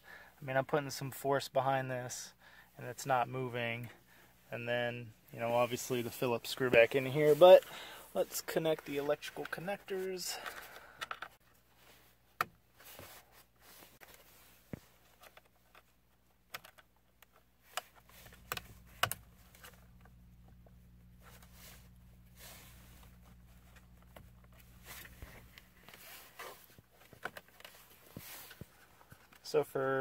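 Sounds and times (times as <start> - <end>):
low steady hum: 16.0 - 29.9.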